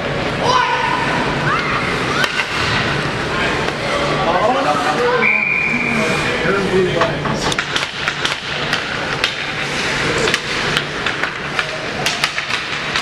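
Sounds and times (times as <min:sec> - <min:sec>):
low hum of ice rink: 0:00.0 - 0:13.0
hockey sticks and puck clacking: 0:01.6 - 0:02.8, 0:07.0 - 0:13.0.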